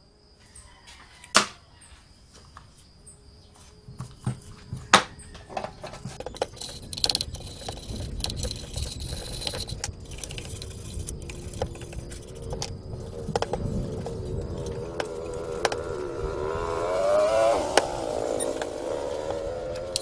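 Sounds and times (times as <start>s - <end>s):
hand tool scraping metal: 5.4s - 15.7s.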